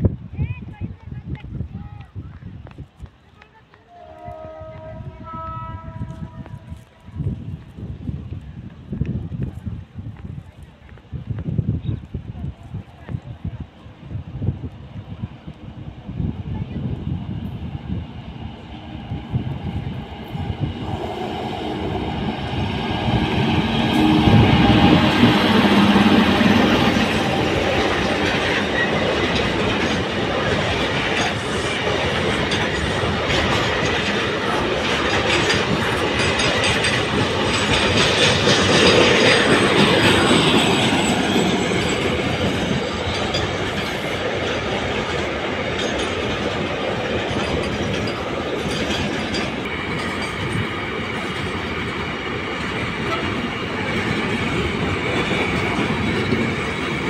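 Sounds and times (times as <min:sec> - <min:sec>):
electric locomotive humming past: 0:03.7 - 0:07.5, 0:14.1 - 0:57.0
train wheels clickety-clack: 0:15.5 - 0:57.0.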